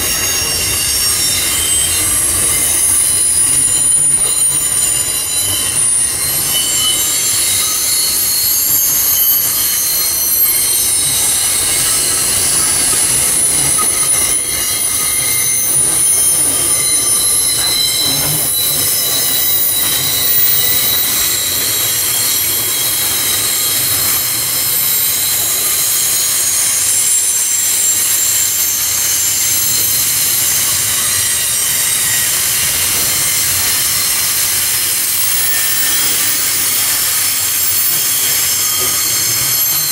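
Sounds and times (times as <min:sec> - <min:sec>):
train wheels squealing: 0:00.0 - 0:39.9.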